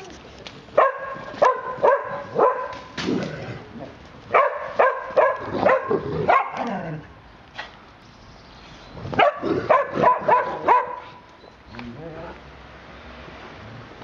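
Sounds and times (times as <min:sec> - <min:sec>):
dog yapping: 0:00.8 - 0:02.8, 0:04.3 - 0:06.7, 0:09.2 - 0:11.2.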